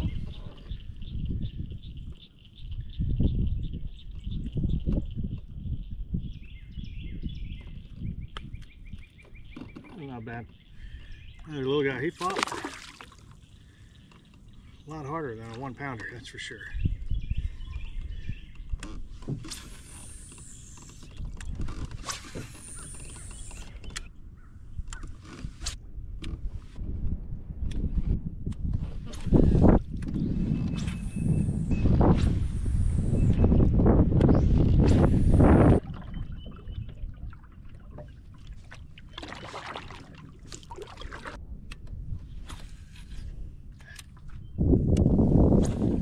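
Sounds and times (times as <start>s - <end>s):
paddle splashing in water: 12.2s - 13.5s, 35.8s - 41.4s
fishing reel whirring: 19.6s - 21.2s.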